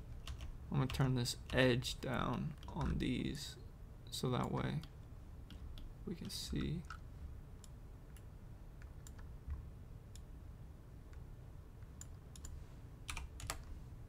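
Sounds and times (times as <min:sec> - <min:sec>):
faint low hum: 0:00.0 - 0:14.0
computer mouse clicks: 0:07.6 - 0:10.3, 0:11.8 - 0:13.7.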